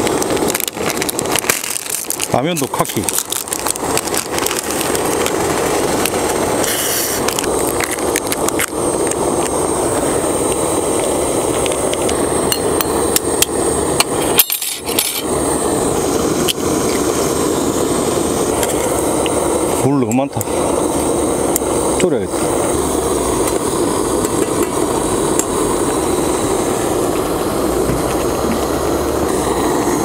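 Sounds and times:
packet crinkling: 0.0s - 9.5s
gas stove burner rushing: 0.0s - 30.0s.

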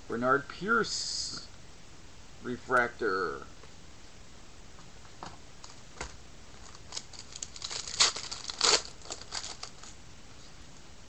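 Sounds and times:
card and packaging crinkling: 6.6s - 10.0s.

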